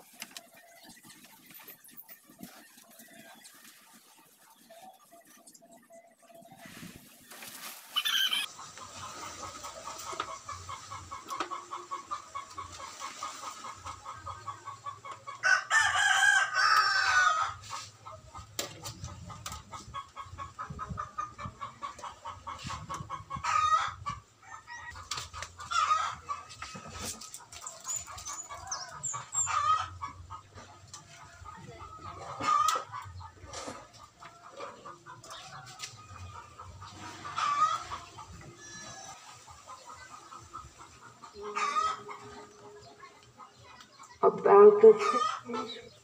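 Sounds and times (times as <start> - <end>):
chicken calls: 0.0 - 46.0
rooster crowing: 15.4 - 17.4.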